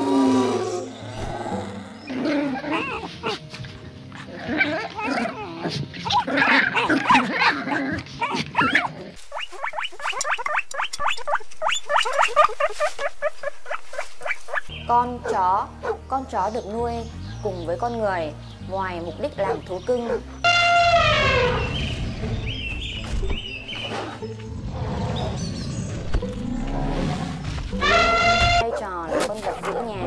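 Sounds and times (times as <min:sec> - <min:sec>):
dogs barking and growling: 0:00.0 - 0:16.3, 0:19.2 - 0:20.5, 0:23.8 - 0:30.0
dog yelping: 0:02.6 - 0:03.4, 0:04.2 - 0:14.6, 0:15.2 - 0:16.0, 0:19.4 - 0:20.4, 0:27.8 - 0:30.0.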